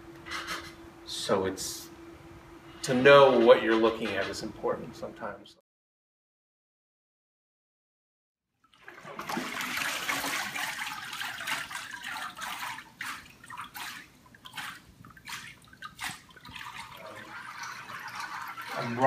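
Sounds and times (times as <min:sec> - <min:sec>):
water pouring into vat: 0:08.6 - 0:19.0
water trickling and splashing: 0:08.6 - 0:19.0.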